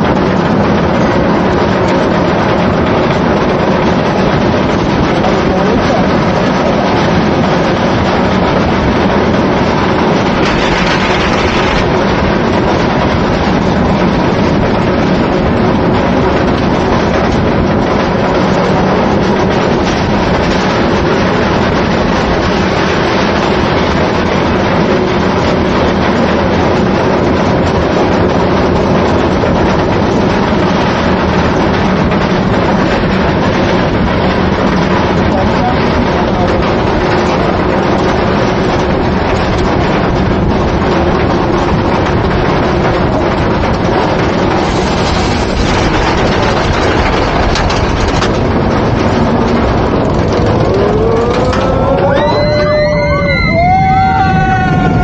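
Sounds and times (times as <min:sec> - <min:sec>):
roller coaster lift chain clatter: 0:00.0 - 0:55.0
wind rushing: 0:00.0 - 0:55.0
rising tone: 0:48.8 - 0:55.0.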